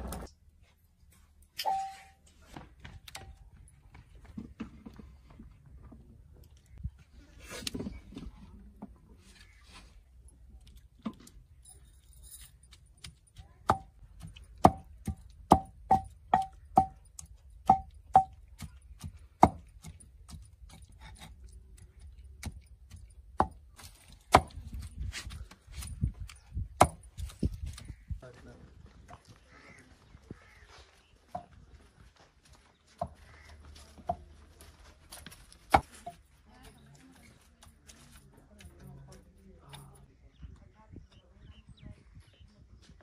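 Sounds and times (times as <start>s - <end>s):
wooden pestle knocking in a mortar: 14.6s - 17.0s, 17.7s - 18.7s.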